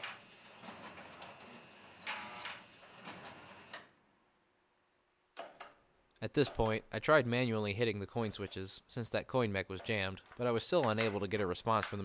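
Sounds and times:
vending machine buzzing whirrs: 0.0s - 3.8s.

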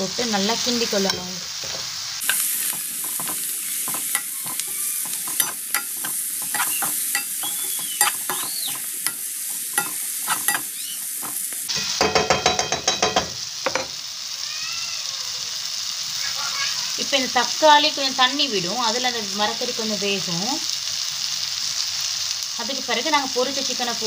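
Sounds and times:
vegetables sizzling in oil: 0.0s - 24.0s
spoon scraping and tapping a pan: 1.1s - 14.0s.

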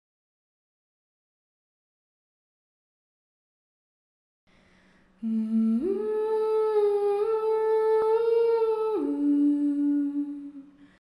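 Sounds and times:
person humming: 5.2s - 10.8s.

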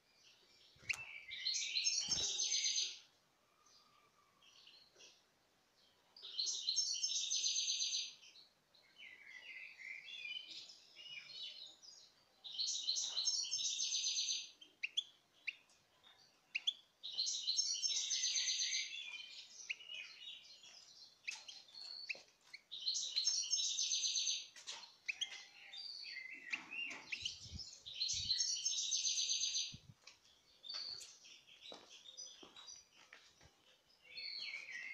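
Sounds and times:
goldfinch singing: 0.6s - 3.0s, 16.5s - 29.8s.

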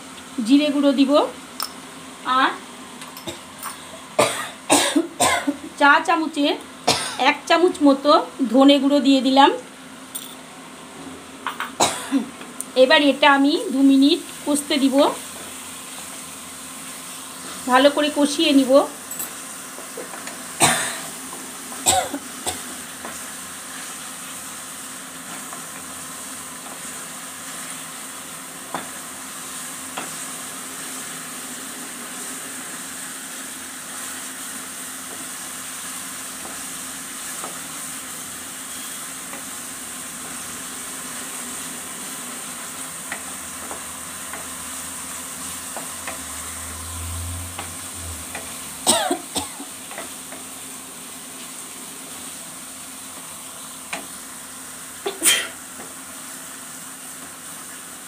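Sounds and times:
spice paste sizzling in oil: 12.3s - 58.0s.

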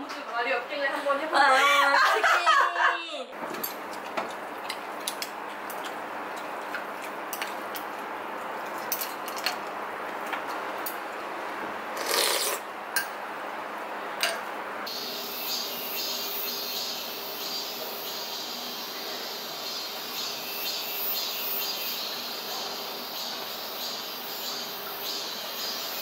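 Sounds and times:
utensils clinking on ceramic bowls: 3.5s - 8.0s, 8.6s - 11.0s
cicadas buzzing: 14.9s - 26.0s.

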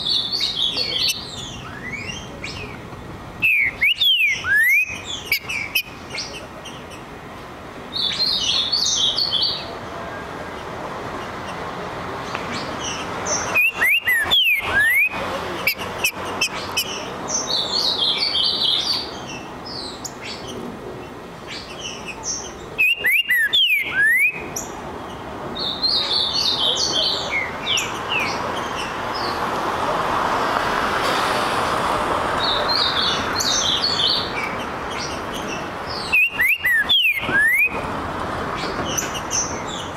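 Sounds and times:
bird singing high notes: 36.0s - 37.7s.

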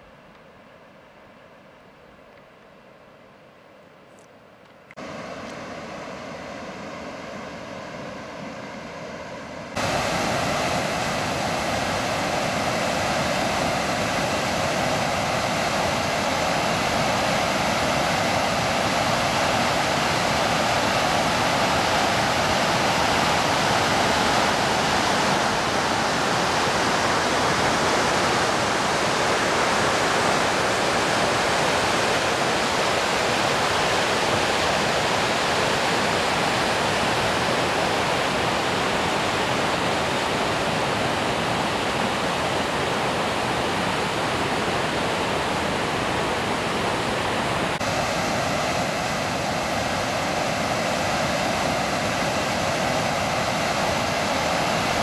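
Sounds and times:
waterfall rushing: 9.7s - 55.0s.

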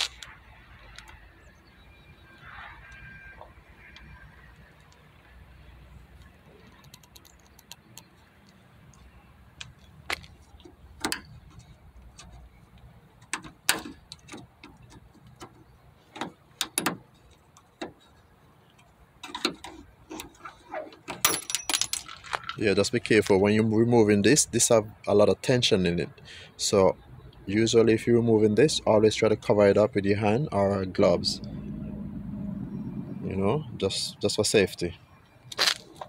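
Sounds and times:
tool clicking and knocking on metal: 13.2s - 18.0s.

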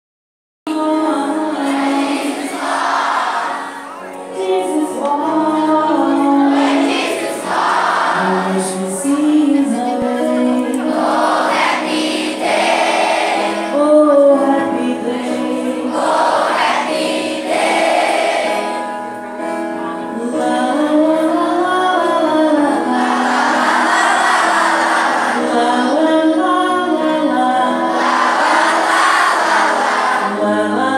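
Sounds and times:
music: 0.7s - 30.9s
children singing in chorus: 1.2s - 9.6s, 10.6s - 13.8s, 15.2s - 18.9s, 22.7s - 26.4s, 27.3s - 30.9s.

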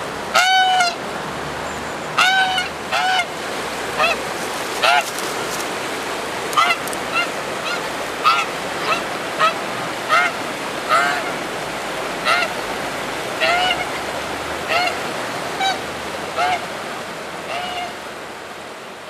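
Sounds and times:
fast-flowing river rushing: 0.0s - 19.0s
goose honking: 0.3s - 1.0s, 2.2s - 5.6s, 6.5s - 11.4s, 12.2s - 12.6s, 13.4s - 14.0s, 14.6s - 16.7s, 17.5s - 18.0s.

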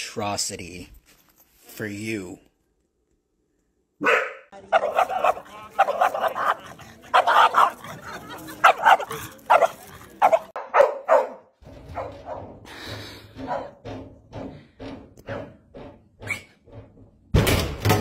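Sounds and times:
dog barking: 4.0s - 12.5s.

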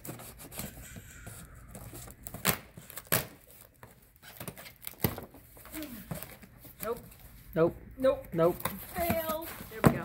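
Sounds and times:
rustling and tearing packing material: 0.0s - 7.5s.

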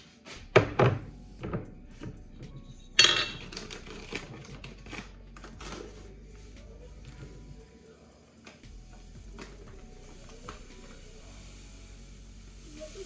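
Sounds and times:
containers knocking on countertop: 0.6s - 1.6s
utensils clattering: 2.6s - 6.0s.

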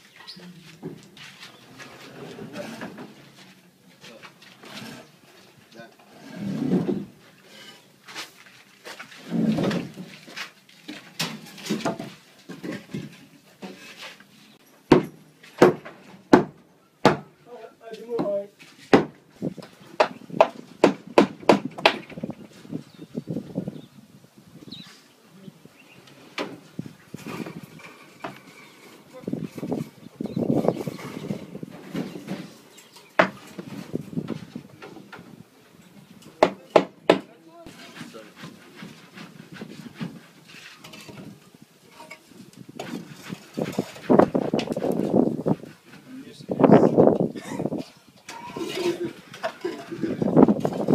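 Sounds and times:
scraping and handling sounds: 0.0s - 14.8s, 26.0s - 35.4s, 37.6s - 50.9s
sharp knocks: 14.9s - 17.3s, 18.2s - 19.2s, 20.0s - 22.2s.

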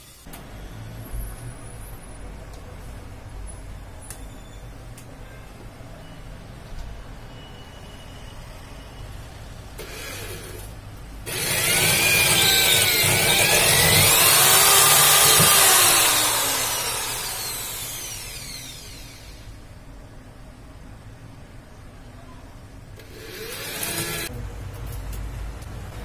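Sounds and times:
electric drill boring into wall: 9.8s - 10.7s, 11.3s - 19.5s, 23.0s - 24.3s.

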